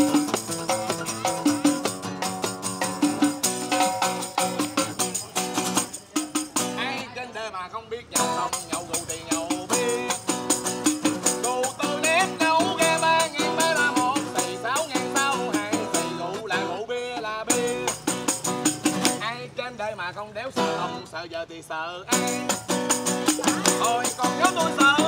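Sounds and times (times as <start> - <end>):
tambourine jingling: 0.0 - 6.8, 8.2 - 16.4, 17.4 - 19.2, 22.1 - 25.0
strummed acoustic guitar: 0.0 - 7.2, 8.1 - 19.7, 20.4 - 21.2, 22.1 - 25.0
man singing: 6.6 - 25.0.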